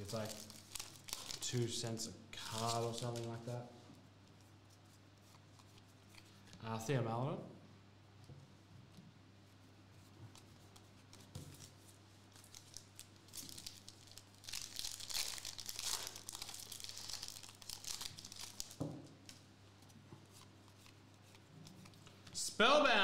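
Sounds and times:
foil wrapper tearing and crinkling: 0.0s - 1.6s, 12.3s - 18.8s.

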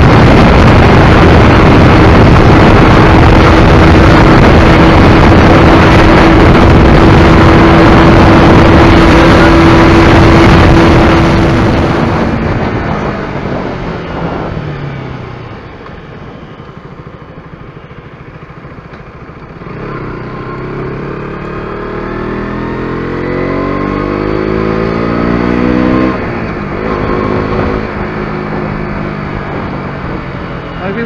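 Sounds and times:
motorcycle engine accelerating: 0.0s - 31.0s.

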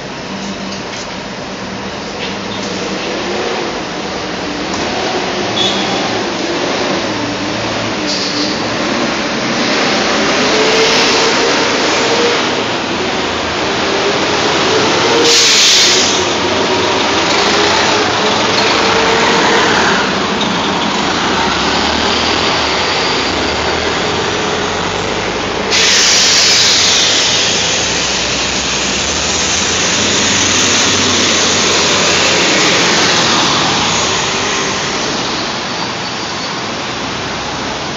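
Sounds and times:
bus drive whine: 0.0s - 37.9s
street noise: 0.0s - 37.9s
air hiss: 15.2s - 16.5s, 25.6s - 32.9s.

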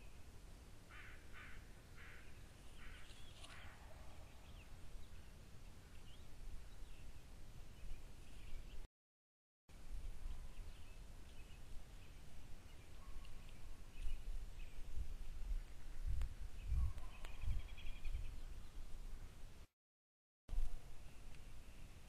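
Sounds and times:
faint bird chirps: 0.9s - 8.9s, 10.0s - 15.5s, 16.6s - 19.4s.

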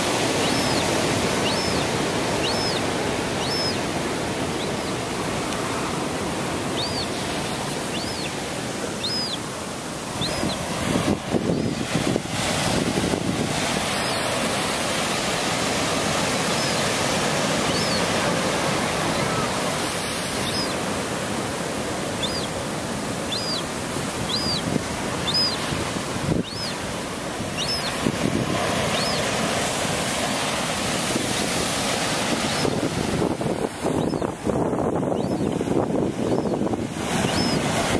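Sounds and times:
gull chick begging peeps: 0.0s - 6.0s, 6.6s - 10.7s, 13.8s - 14.5s, 16.2s - 20.9s, 22.1s - 28.1s, 28.7s - 29.4s, 33.9s - 34.4s, 35.0s - 35.6s, 37.2s - 37.7s
wind on microphone: 0.0s - 21.3s, 22.0s - 37.9s
surf washing against rocks: 0.0s - 37.9s.

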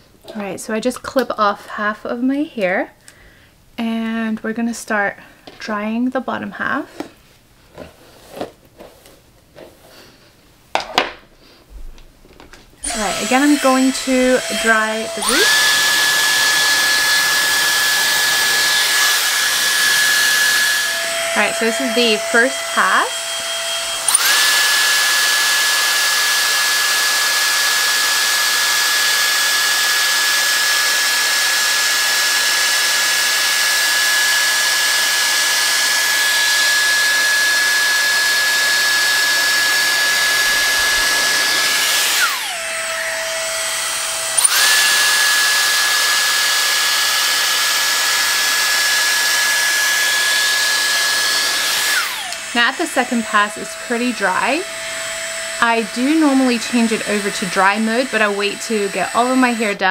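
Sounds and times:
hair dryer blowing with motor whine: 12.8s - 59.9s.

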